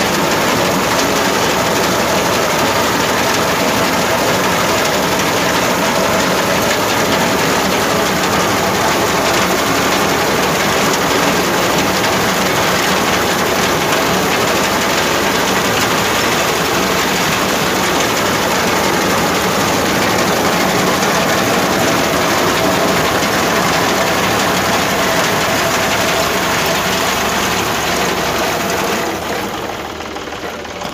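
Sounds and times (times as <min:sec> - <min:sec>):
tractor diesel engine under load: 0:00.0 - 0:30.9
reaper cutting wheat: 0:00.1 - 0:30.9.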